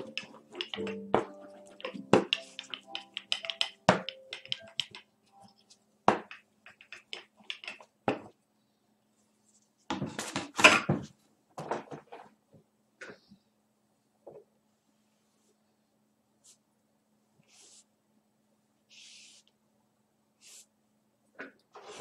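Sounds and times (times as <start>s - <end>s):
paper scraping and rustling: 21.7s - 22.0s.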